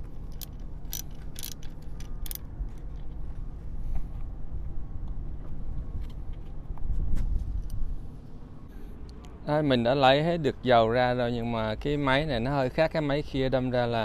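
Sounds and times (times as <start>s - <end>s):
bolt turned out by hand: 0.0s - 2.4s
ratchet wrench clicking: 0.0s - 2.4s
steady low rumble: 0.0s - 14.0s.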